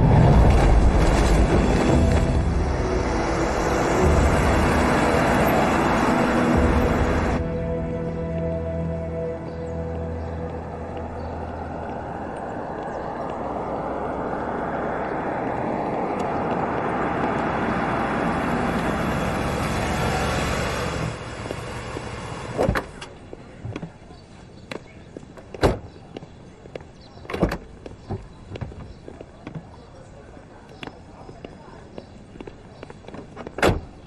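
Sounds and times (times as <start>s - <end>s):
footsteps: 9.7s - 14.6s.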